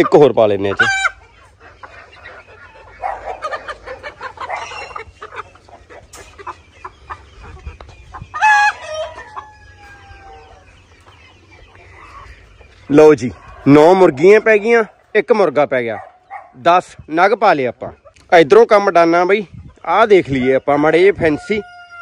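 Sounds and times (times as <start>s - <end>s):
chickens clucking and squawking: 0.0s - 22.0s
rooster crowing: 21.2s - 22.0s.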